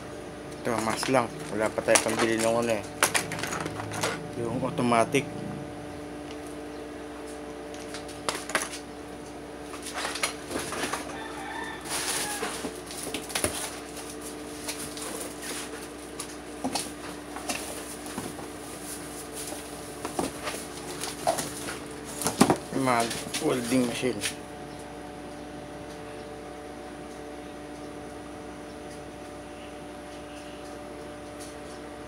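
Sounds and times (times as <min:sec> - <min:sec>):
steady hum: 0:00.0 - 0:32.0
cardboard rustling and knocking: 0:19.3 - 0:23.2.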